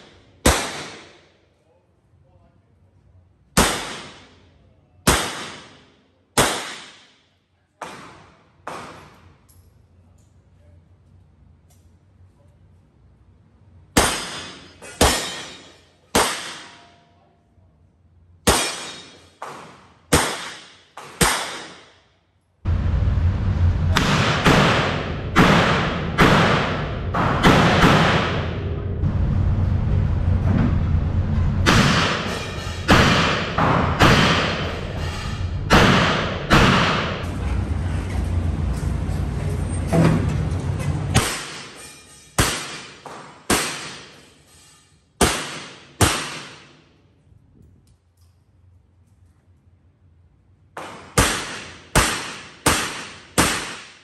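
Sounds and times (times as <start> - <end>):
revolver shots echoing indoors: 0.0 - 1.6, 3.4 - 9.9, 13.6 - 17.2, 17.8 - 38.0, 41.0 - 49.3, 50.4 - 54.0
steady low rumble: 22.6 - 41.4.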